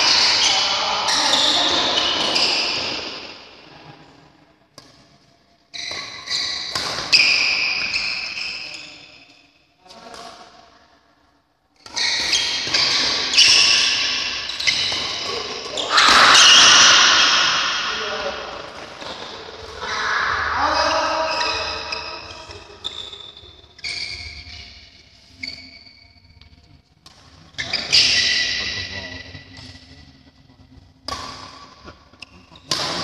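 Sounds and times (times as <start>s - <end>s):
shoes squeaking on court floor: 0.0s - 3.4s, 5.7s - 9.4s, 11.8s - 17.8s, 18.6s - 20.0s, 20.8s - 26.2s, 27.2s - 28.8s
rackets hitting shuttlecock: 5.9s - 8.4s, 11.8s - 20.0s, 31.1s - 33.0s.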